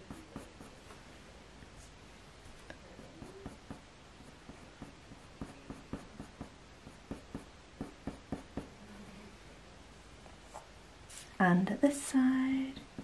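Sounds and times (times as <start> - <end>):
pencil scratching on paper: 0.0 - 0.8, 2.8 - 8.7.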